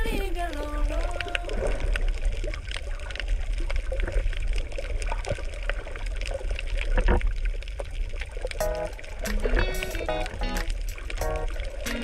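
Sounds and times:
low rumble of moving water: 0:00.0 - 0:12.0
sharp clicks and crackles: 0:00.4 - 0:12.0.

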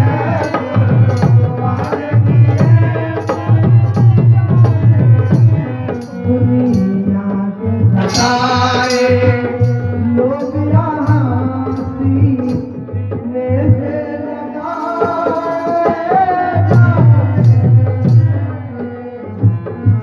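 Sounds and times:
person singing ornamented melody: 0:06.0 - 0:18.8
held instrumental tones: 0:07.9 - 0:12.9
hand drum strokes: 0:07.9 - 0:13.0.

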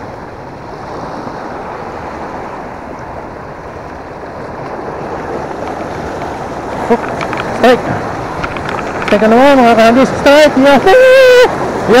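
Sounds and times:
waves washing over rocks: 0:00.0 - 0:12.0
wind on microphone: 0:00.0 - 0:12.0.

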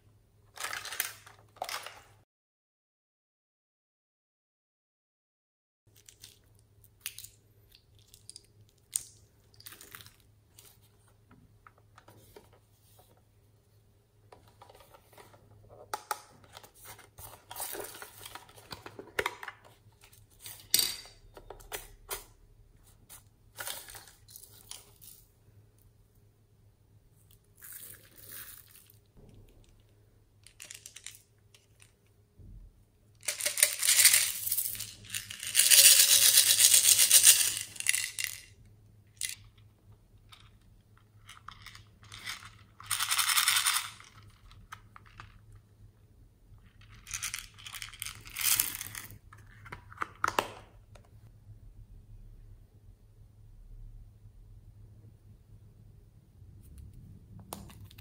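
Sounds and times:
plastic toys clicking and clattering: 0:30.4 - 0:32.0, 0:33.2 - 0:38.5, 0:40.4 - 0:45.5, 0:46.8 - 0:50.7.

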